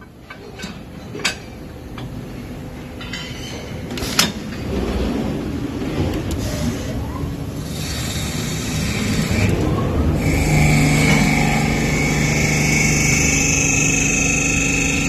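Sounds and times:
machine rumble: 3.8s - 15.0s
sliding door closing: 3.9s - 7.6s, 9.3s - 14.7s
short rising whine: 10.2s - 15.0s.

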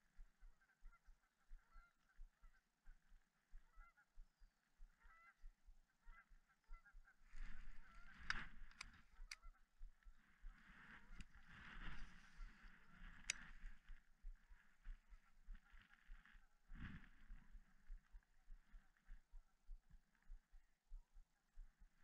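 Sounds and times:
distant bird calls: 0.0s - 19.2s
steady rustle: 10.6s - 15.0s.

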